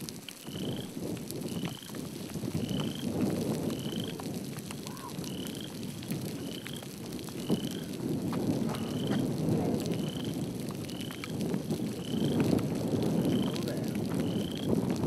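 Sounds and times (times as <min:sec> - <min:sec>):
frog calling: 0:04.9 - 0:05.8.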